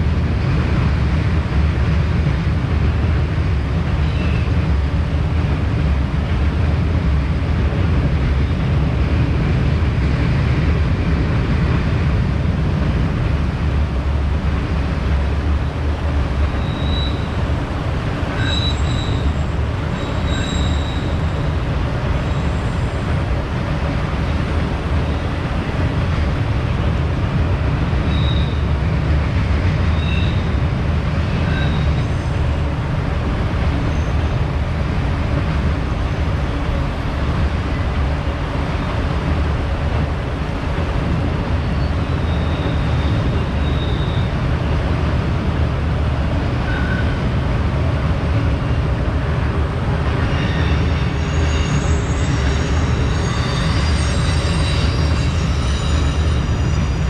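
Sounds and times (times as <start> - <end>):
freight train wheels rumbling: 0.0 - 57.0
high-pitched wheel squeals: 16.5 - 17.4, 18.3 - 21.3, 28.1 - 28.7, 30.0 - 30.6, 31.3 - 32.3, 41.7 - 44.3, 50.2 - 57.0.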